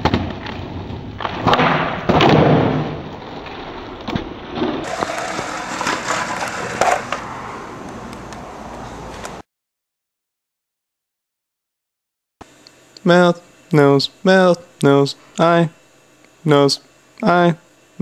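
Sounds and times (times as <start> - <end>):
skateboard clacks and thuds: 0.0 - 3.1, 4.0 - 7.2
skateboard wheels rolling: 0.0 - 9.4.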